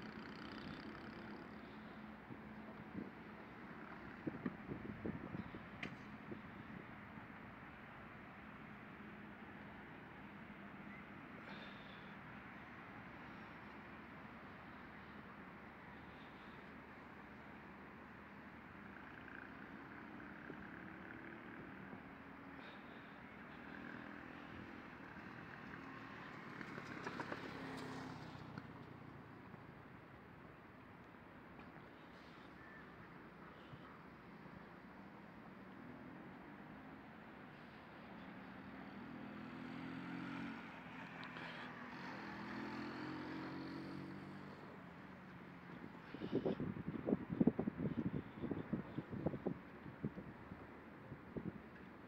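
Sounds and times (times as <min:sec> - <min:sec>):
distant motor vehicle running: 0:00.0 - 0:52.0.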